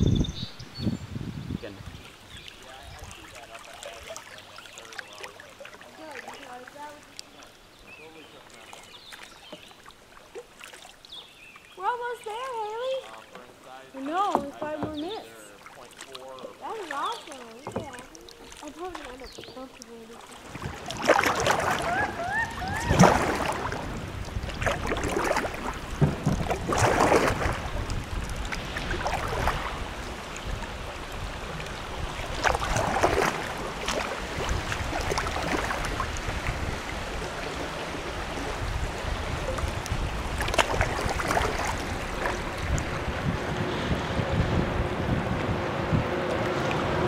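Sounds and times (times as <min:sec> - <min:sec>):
wind on microphone: 0:00.0 - 0:03.2, 0:20.5 - 0:47.0
kayak paddle splashing: 0:01.8 - 0:47.0.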